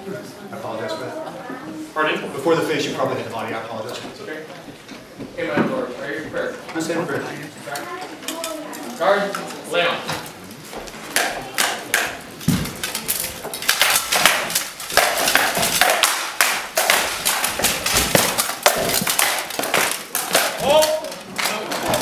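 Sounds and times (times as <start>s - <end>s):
rattan weapons clacking on armour: 11.2s - 22.0s.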